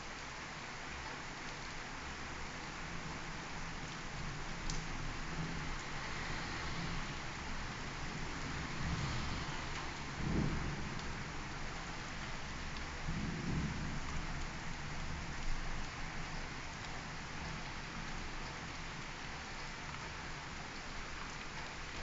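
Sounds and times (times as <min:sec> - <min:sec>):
steady rain hissing: 0:00.0 - 0:22.0
low rolls of thunder: 0:08.5 - 0:15.8.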